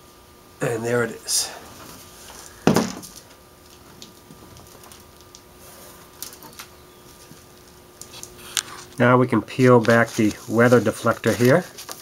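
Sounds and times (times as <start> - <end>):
faint steady hum: 0.0 - 12.0
faint clicks and rustles: 9.6 - 12.0.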